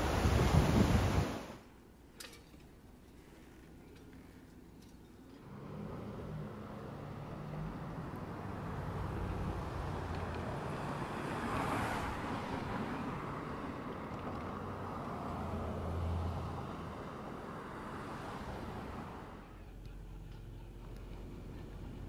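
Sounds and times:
low engine hum: 4.0 - 22.0
passing vehicle: 5.4 - 22.0.

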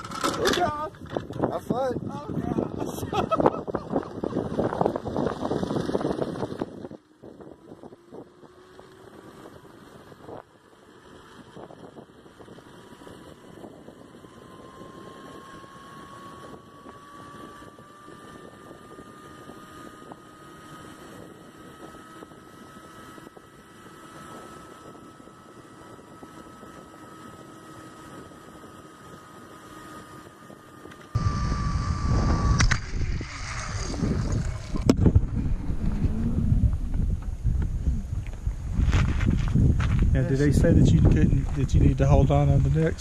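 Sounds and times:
zip-line pulleys whining: 0.0 - 1.4, 2.2 - 39.9
harness hardware clicks: 0.0 - 1.5
wind rumbling on microphone: 0.0 - 43.0.

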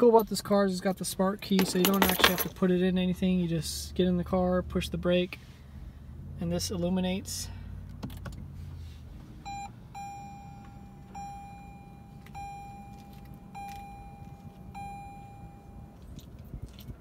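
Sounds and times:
dashboard beep: 9.5 - 16.1
repeating dashboard chime tone: 9.5 - 16.1.

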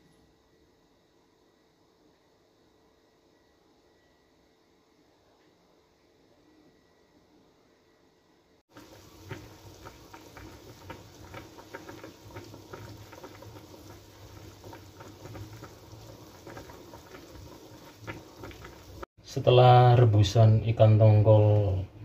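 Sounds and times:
water boiling and bubbling: 8.7 - 19.2.

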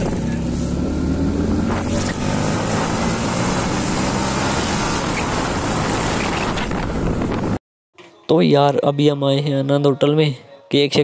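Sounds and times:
rushing road noise: 0.0 - 7.6
vehicle engine drone: 0.0 - 7.6.

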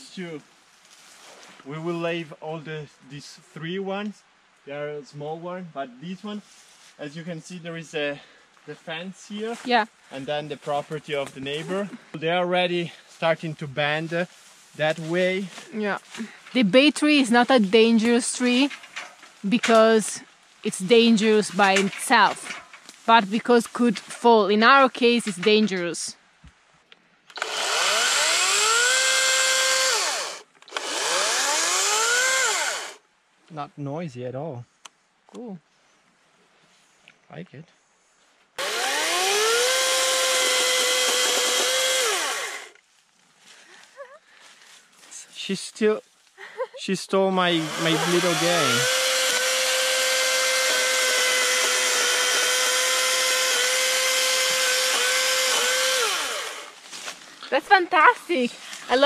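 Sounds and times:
electric chainsaw motor whine: 27.3 - 33.0, 38.6 - 42.8, 47.6 - 56.8.

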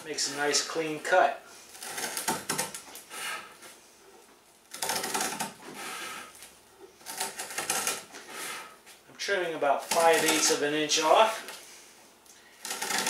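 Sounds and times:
shears snipping plywood: 1.7 - 3.5, 4.7 - 8.7, 9.7 - 11.6, 12.6 - 13.0.

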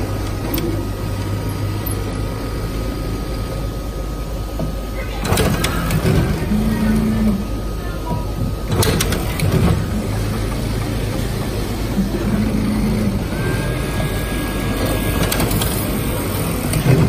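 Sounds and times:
cutting machine mechanical hum: 0.0 - 17.0
high steady whine: 0.0 - 17.0
sharp machine clicks: 5.2 - 6.4, 8.7 - 9.8, 14.1 - 17.0.

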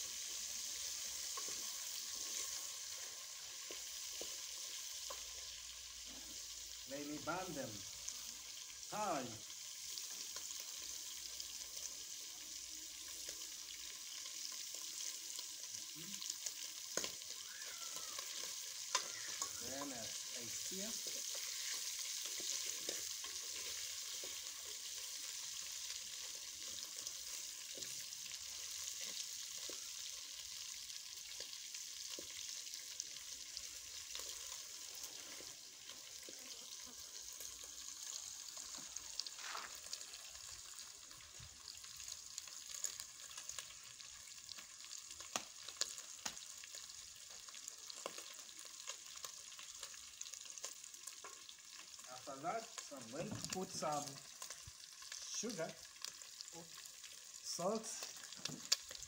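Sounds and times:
food sizzling in hot oil: 0.0 - 59.0
cooking stick scraping a pan: 0.3 - 6.5, 18.2 - 29.9, 33.6 - 40.1.

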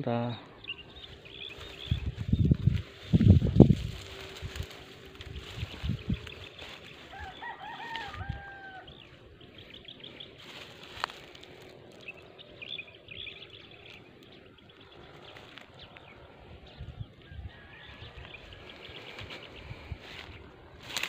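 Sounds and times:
small birds chirping: 0.0 - 21.0
rooster crowing: 6.9 - 9.2, 17.2 - 18.9.

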